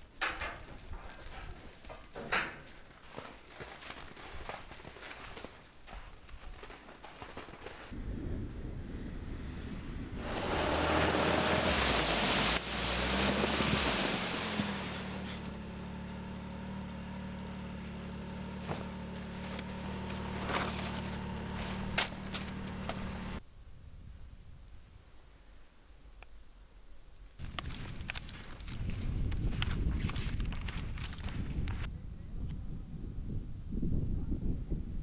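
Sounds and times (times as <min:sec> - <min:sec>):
snowmobile engine idling: 0:10.2 - 0:23.4.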